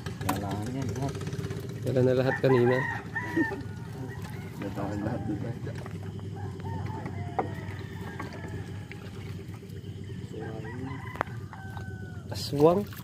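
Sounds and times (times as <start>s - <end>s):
boat engine humming: 0.0s - 13.0s
faint calls: 0.0s - 13.0s.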